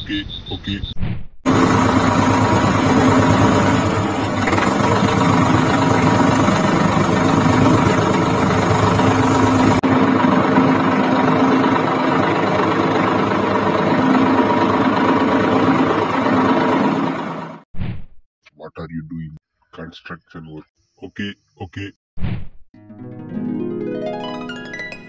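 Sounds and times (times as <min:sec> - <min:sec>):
engine running: 0:01.5 - 0:17.6.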